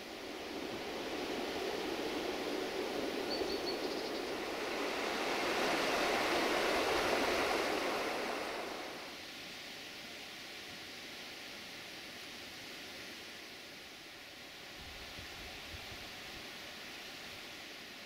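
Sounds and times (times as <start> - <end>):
river water rushing: 4.3 - 9.1.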